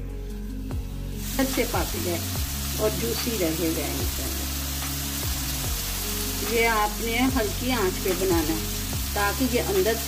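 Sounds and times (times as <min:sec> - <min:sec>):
background music melody: 0:00.0 - 0:10.0
chicken sizzling in pan: 0:00.3 - 0:10.0.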